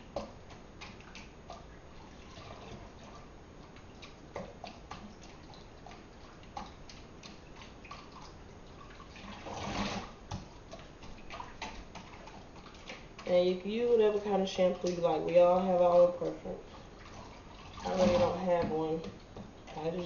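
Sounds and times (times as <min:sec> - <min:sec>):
water splashing in a metal sink: 0:00.0 - 0:20.0
water pouring into sink: 0:06.5 - 0:10.2, 0:15.6 - 0:20.0.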